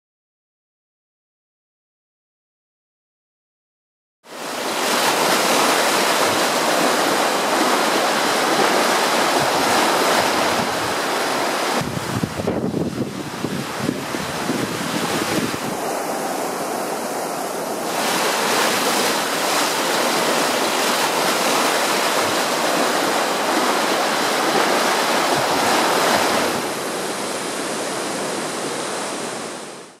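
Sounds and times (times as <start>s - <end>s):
rushing floodwater: 4.3s - 30.0s
wind buffeting microphone: 9.3s - 26.9s.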